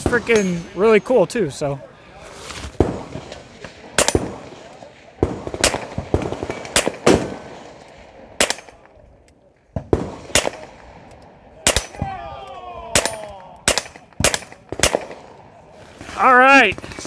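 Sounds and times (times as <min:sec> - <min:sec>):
suppressed pistol shots: 0:04.0 - 0:07.4, 0:08.4 - 0:09.0, 0:09.9 - 0:10.7, 0:13.0 - 0:15.2.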